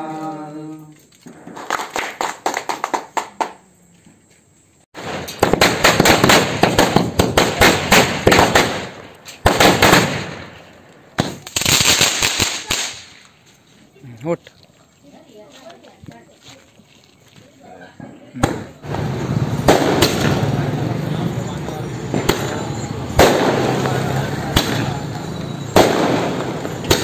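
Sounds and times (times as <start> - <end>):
firecrackers going off: 1.2 - 3.4, 5.0 - 13.5, 18.4 - 27.0.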